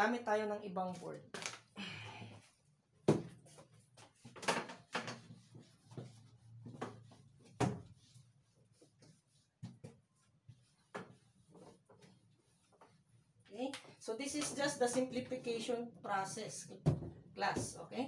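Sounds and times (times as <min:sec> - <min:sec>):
whiteboard knocks and bumps: 0:03.0 - 0:08.2.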